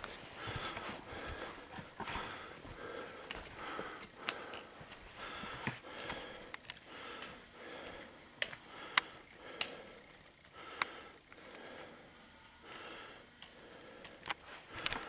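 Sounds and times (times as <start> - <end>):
footsteps on rocky path: 0.0 - 7.8
person breathing hard: 0.0 - 15.0.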